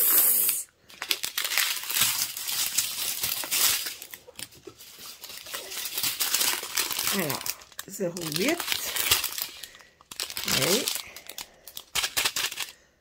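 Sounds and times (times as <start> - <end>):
plastic bags crinkling: 0.8 - 12.9.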